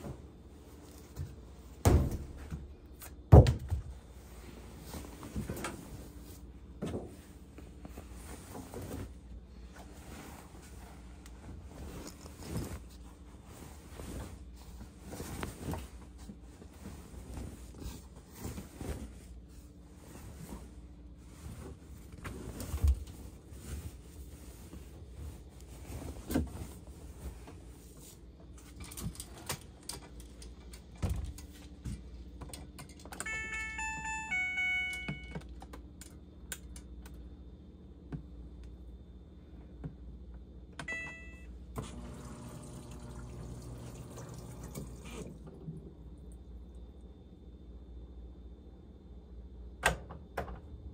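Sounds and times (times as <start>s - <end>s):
fabric rustling: 7.3s - 28.3s
washer electronic beeps: 33.2s - 35.5s, 40.8s - 45.2s.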